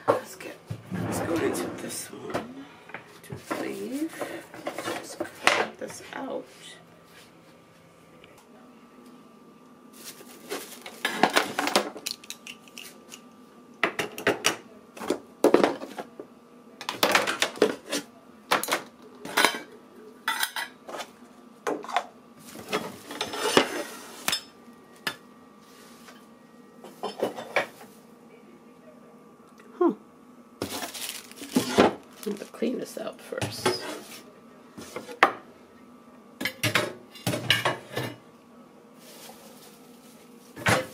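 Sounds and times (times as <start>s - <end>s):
kitchen utensils clattering: 26.8s - 27.8s.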